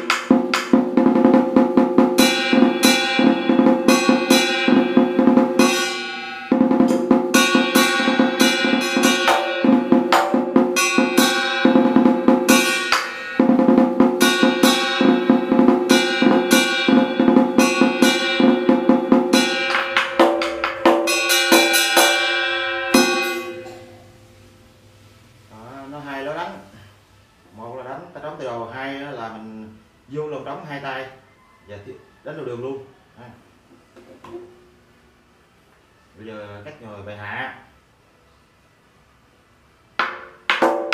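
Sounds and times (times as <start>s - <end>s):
drum rolls with sticks: 0.0s - 24.1s, 40.0s - 40.9s.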